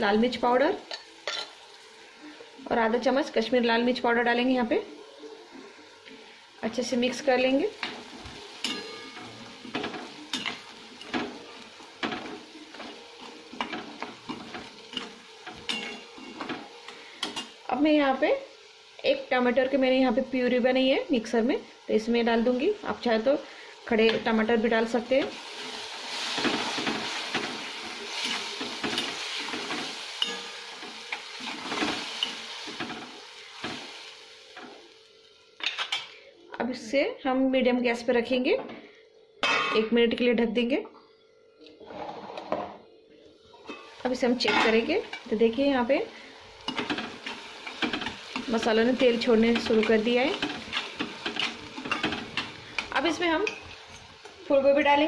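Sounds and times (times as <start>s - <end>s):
oil sizzling: 0.0s - 36.3s, 43.5s - 55.0s
metal spatula scraping a pan: 28.1s - 32.9s
spatula stirring and scraping: 46.6s - 54.2s.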